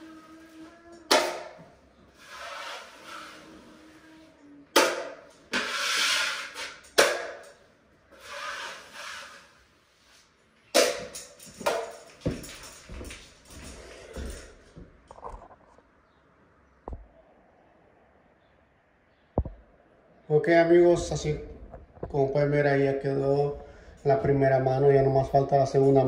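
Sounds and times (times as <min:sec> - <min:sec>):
knife scraping joint compound: 0:02.1 - 0:03.8, 0:04.8 - 0:07.5, 0:08.1 - 0:10.3.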